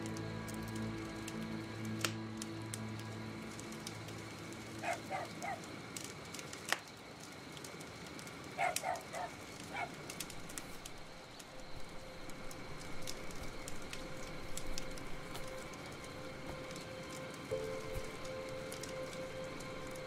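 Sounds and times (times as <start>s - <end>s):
low music: 0.0s - 6.4s, 10.9s - 20.0s
campfire crackling and popping: 0.0s - 20.0s
bird calling: 4.8s - 5.7s, 8.6s - 10.0s.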